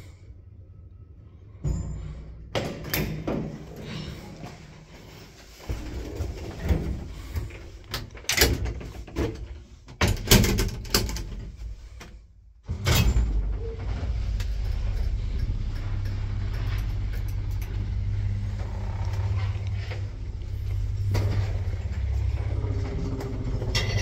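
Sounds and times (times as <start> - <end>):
lift running hum: 0.0 - 9.6, 11.5 - 24.0
wooden lift doors clattering: 5.8 - 11.6.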